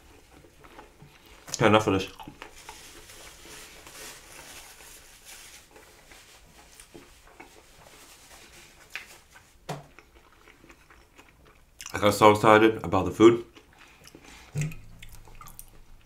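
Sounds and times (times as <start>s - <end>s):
soft rustling: 2.2s - 9.7s.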